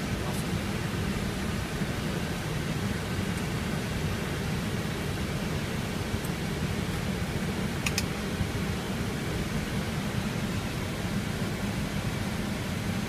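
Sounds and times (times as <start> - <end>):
cockpit hum and hiss: 0.0 - 13.0.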